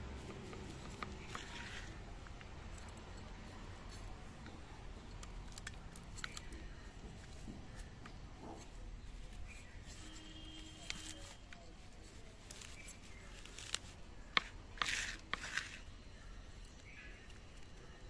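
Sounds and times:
gritty rustle: 0.1 - 3.0, 5.4 - 16.0
soil crackling under fingers: 5.1 - 15.9.

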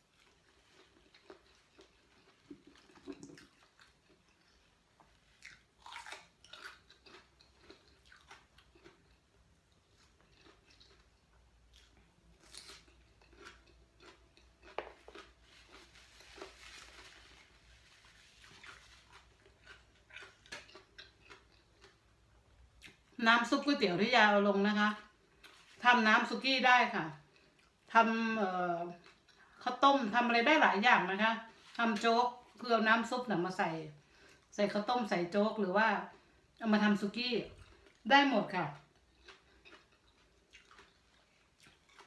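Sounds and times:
person chewing with mouth clicks: 0.1 - 17.0, 18.4 - 23.2, 38.8 - 42.0.

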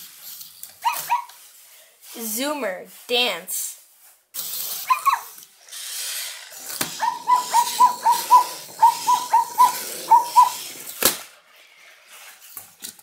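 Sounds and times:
robot toy motor whir: 4.3 - 11.0.

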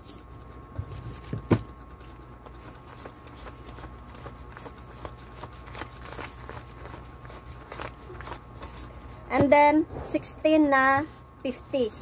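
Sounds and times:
banknotes rustling as counted: 0.0 - 9.4.

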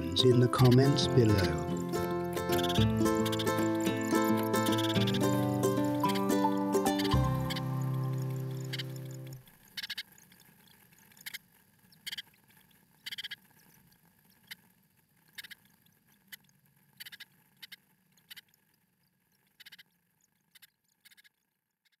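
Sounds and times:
chicks cheeping high-pitched: 0.0 - 9.3.

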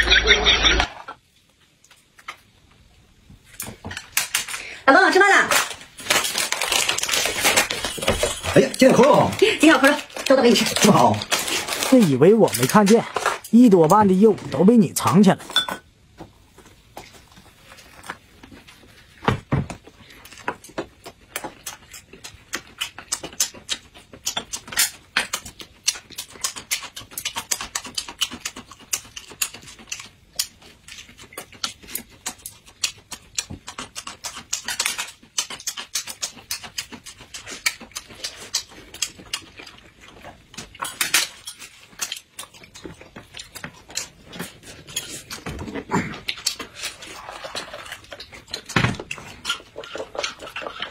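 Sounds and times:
wet chewing and lip smacking: 20.1 - 45.4, 46.1 - 50.9.

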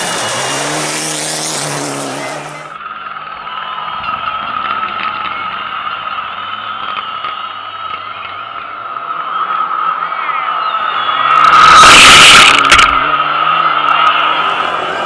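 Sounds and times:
rally car passing on gravel: 0.0 - 2.8.

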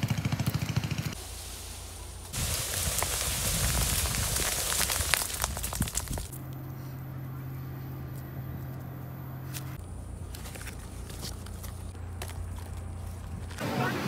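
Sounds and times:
fruits dropping onto dry ground: 2.2 - 6.4, 10.2 - 13.6
low steady hum: 5.6 - 14.0.

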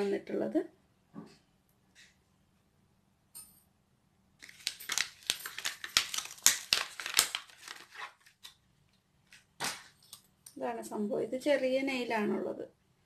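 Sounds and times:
plastic packaging crinkling: 4.4 - 8.6.

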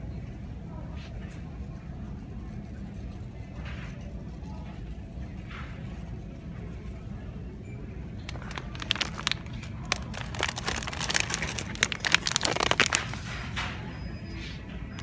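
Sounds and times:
plastic bags crinkling: 8.2 - 13.4.

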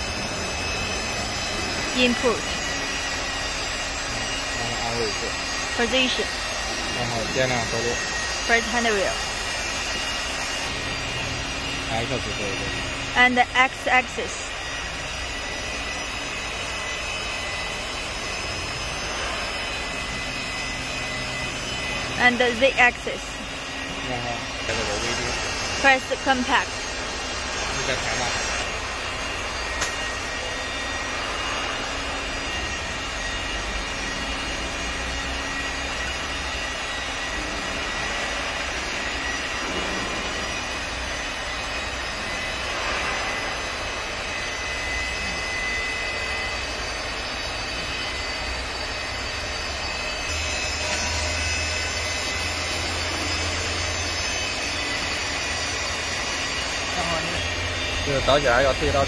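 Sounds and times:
lathe whirring: 0.0 - 59.0
low hum: 0.0 - 59.0.

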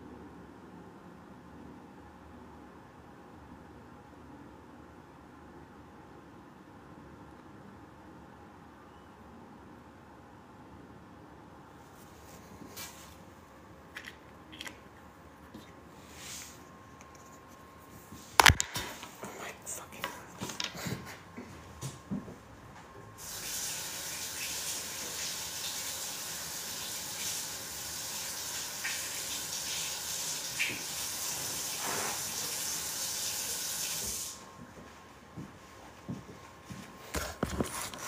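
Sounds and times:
steady hiss: 23.2 - 34.5.

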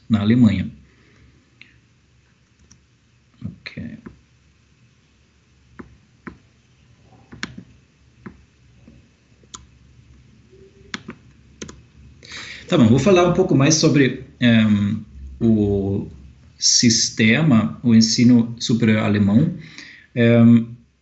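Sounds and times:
mouse and keyboard clicks: 7.3 - 8.4, 10.9 - 11.8.

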